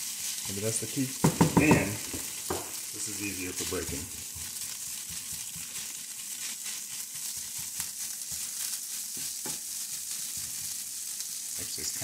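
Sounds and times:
spatula scraping a pan: 0.0 - 11.6
rice and egg sizzling in a skillet: 0.0 - 12.0.

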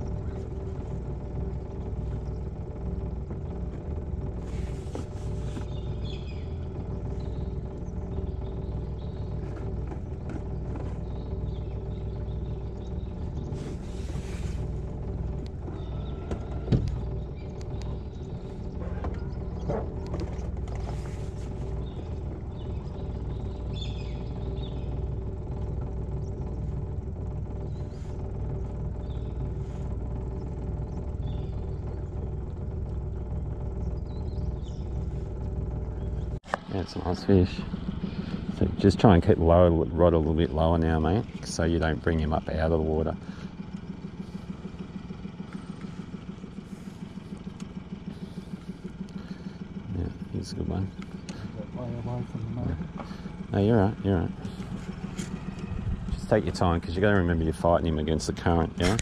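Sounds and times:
outboard motor running: 0.0 - 59.0
light knocks from boat: 3.3 - 6.2, 9.1 - 11.6, 14.6 - 18.0, 18.6 - 22.1.

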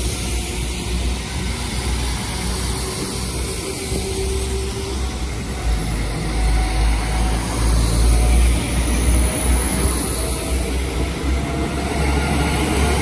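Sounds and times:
diesel train engines under power: 0.0 - 13.0.

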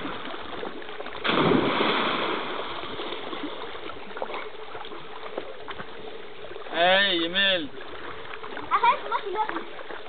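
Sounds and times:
big splash in water: 1.1 - 4.4.

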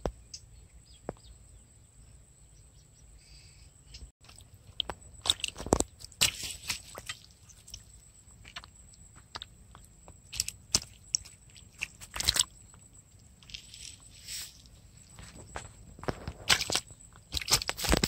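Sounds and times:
fish flapping on wet net: 5.2 - 7.9, 10.3 - 12.5, 16.0 - 18.0.

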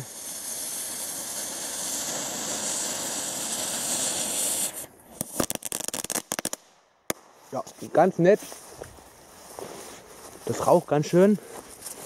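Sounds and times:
firework spinner hissing: 0.0 - 6.8
firework crackling pops: 0.0 - 7.8.

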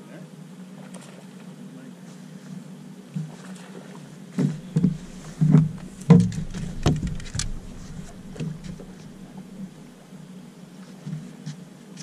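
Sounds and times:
knocks and thumps on boat: 3.1 - 9.9
low hum: 3.4 - 10.2.

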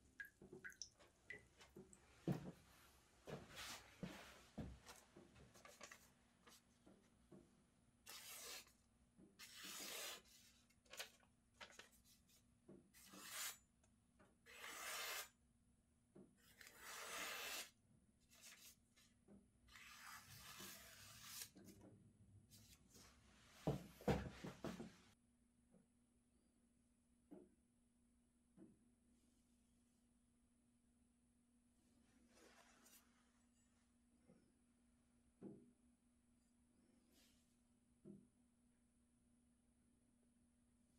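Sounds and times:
paper swishing along knife blade: 8.1 - 8.7, 9.4 - 10.5, 13.0 - 13.6, 14.5 - 15.3, 16.6 - 17.7, 19.7 - 21.6.

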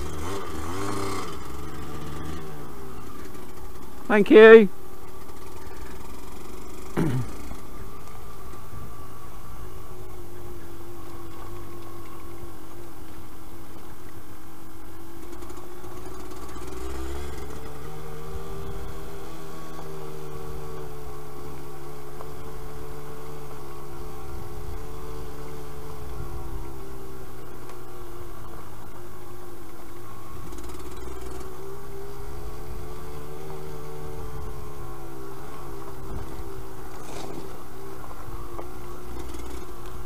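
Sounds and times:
two-stroke engine running: 0.0 - 40.0.

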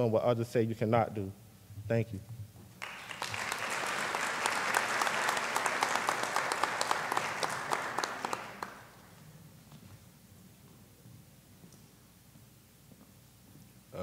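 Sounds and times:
audience applauding: 2.8 - 9.1.

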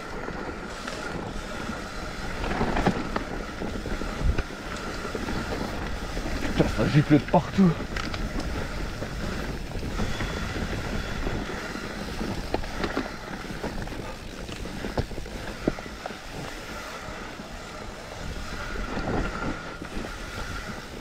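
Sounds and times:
bike knocking and rattling: 0.0 - 21.0
tyres rolling over dirt: 0.0 - 21.0
wind on microphone: 0.0 - 21.0.

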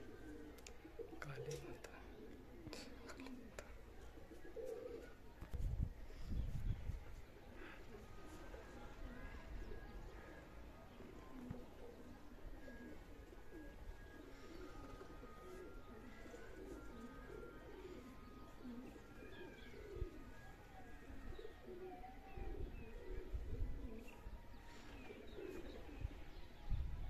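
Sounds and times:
birds calling: 7.3 - 26.6.

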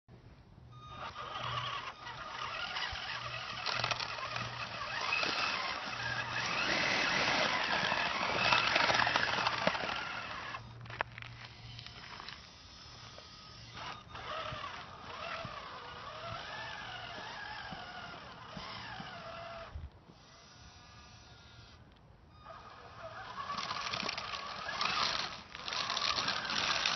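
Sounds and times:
electric motor and gears whining: 0.7 - 26.9
tyres rolling over rough pavement: 1.9 - 11.4, 23.3 - 26.9.

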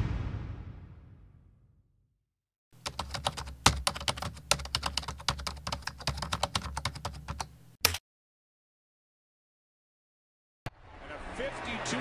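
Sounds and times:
keyboard typing: 2.8 - 8.0.

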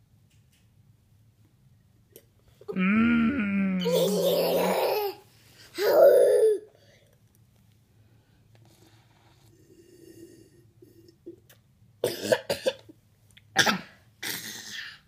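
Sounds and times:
toddler coughing: 5.8 - 6.7, 12.0 - 12.8, 13.6 - 15.0.

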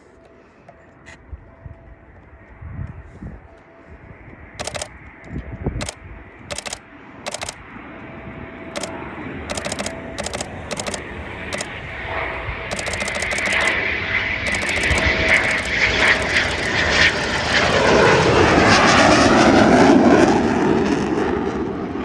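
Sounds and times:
jet aircraft noise: 0.0 - 22.0
camera shutter clicking: 4.6 - 4.9, 5.8 - 7.6, 8.8 - 11.8, 12.7 - 13.8, 14.5 - 17.6.

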